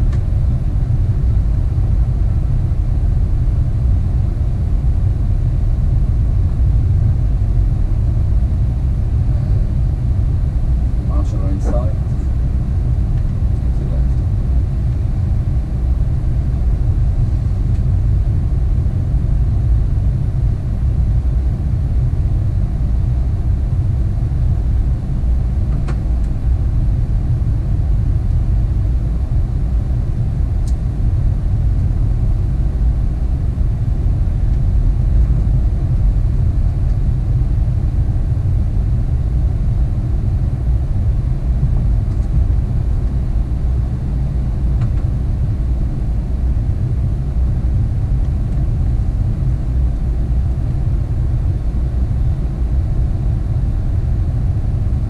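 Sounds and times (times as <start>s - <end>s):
cockpit air noise: 0.0s - 19.7s
aircraft engines idling: 0.0s - 30.0s.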